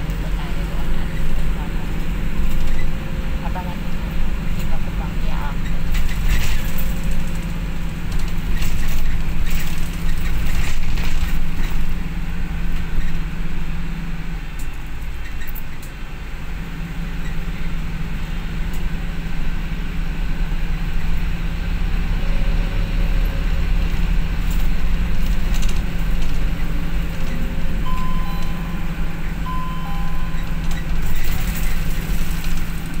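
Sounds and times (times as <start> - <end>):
bus engine hum and road rumble: 0.0 - 33.0
faint short beeps: 27.8 - 31.3.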